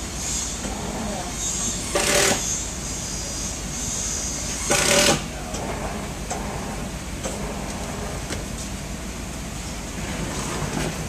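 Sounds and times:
clamp machine running: 0.0s - 3.3s, 4.2s - 8.3s.

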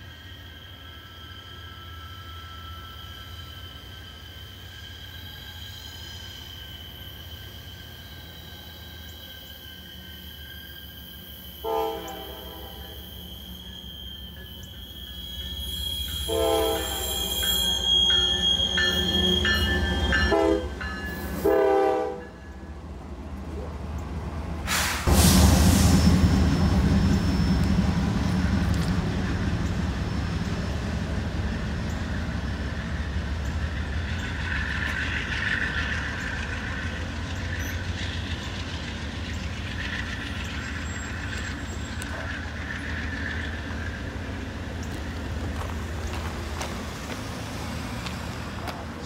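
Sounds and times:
faint high squeal: 0.0s - 22.8s, 25.8s - 49.0s
train passing with loud rush: 0.0s - 49.0s
wheels rumbling on rail: 0.0s - 49.0s
train horn blowing: 11.6s - 13.0s, 15.7s - 22.5s.

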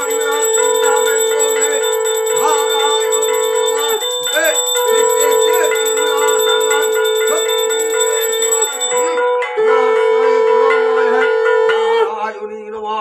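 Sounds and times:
person chanting: 0.0s - 9.2s
bells ringing rapidly: 0.0s - 9.5s
person singing devotional melody: 0.0s - 13.0s.

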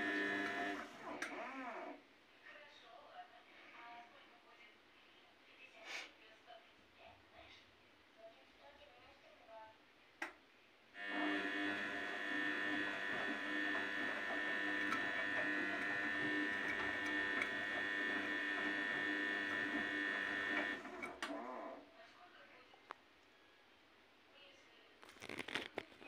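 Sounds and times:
washing machine spinning whine: 0.0s - 2.0s, 11.0s - 21.8s.

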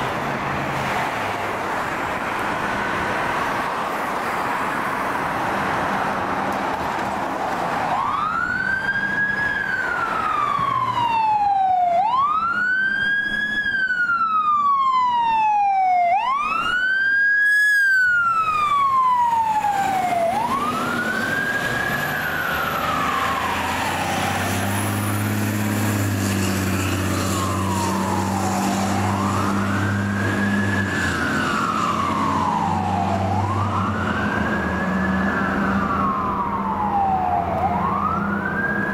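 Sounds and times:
mechanical siren wailing: 7.9s - 38.9s.

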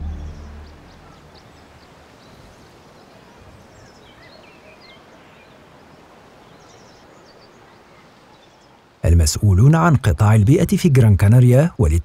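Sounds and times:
small birds chirping: 0.0s - 9.7s
steady background hiss: 0.0s - 12.0s.

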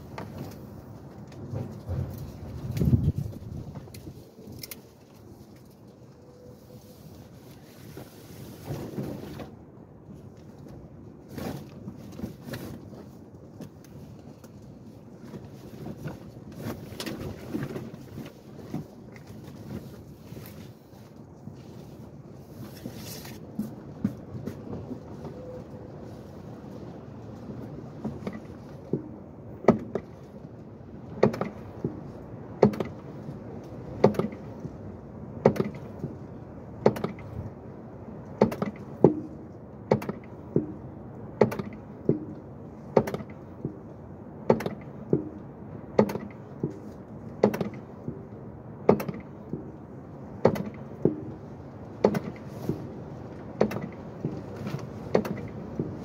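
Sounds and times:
clutch pedal clicking knocks: 36.8s - 37.3s, 47.4s - 48.2s, 48.9s - 49.7s, 50.4s - 51.3s, 52.0s - 52.8s, 55.1s - 56.0s.

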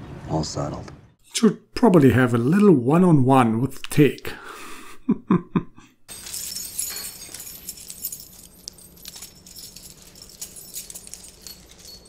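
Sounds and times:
metal handcuffs and chains clinking: 6.1s - 12.0s.

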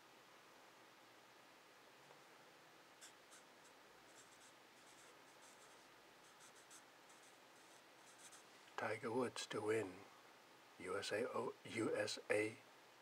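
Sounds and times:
marker scratching on paper: 3.0s - 8.4s.

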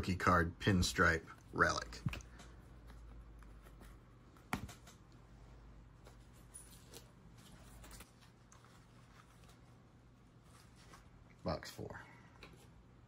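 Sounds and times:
cards tapped onto a stack: 4.4s - 5.0s.

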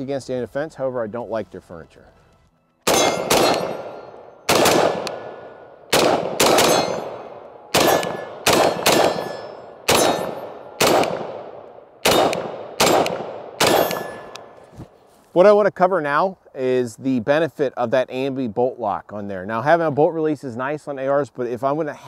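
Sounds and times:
rifle shots echoing: 2.8s - 14.6s
steel targets ringing: 2.9s - 4.4s, 6.5s - 11.0s, 12.1s - 14.5s.

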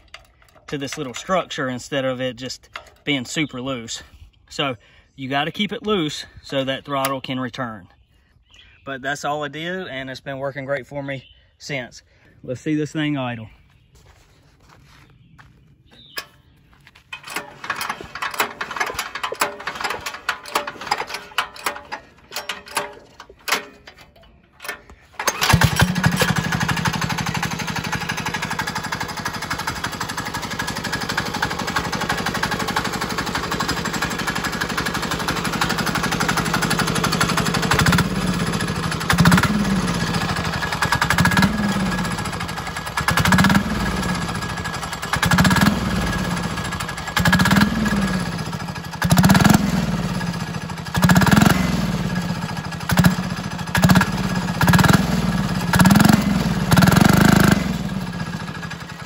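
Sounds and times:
diesel engine starting and idling: 17.0s - 59.0s.

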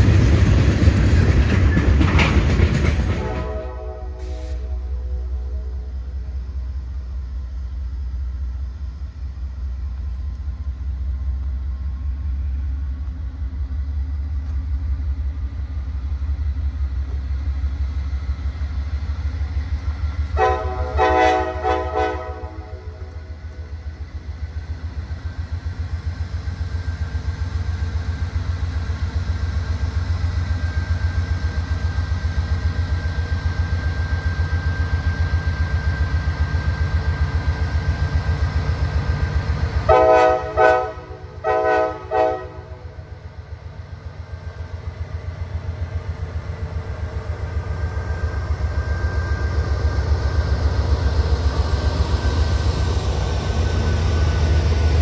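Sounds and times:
diesel locomotive engine rumbling: 0.0s - 55.0s
locomotive air horn blasts: 3.2s - 6.0s, 20.4s - 23.1s, 39.9s - 42.9s.

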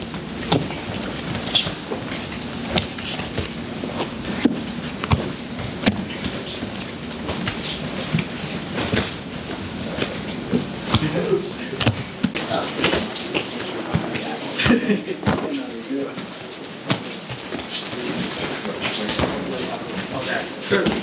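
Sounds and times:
bodies thudding on mats: 0.0s - 15.7s, 16.7s - 19.6s.

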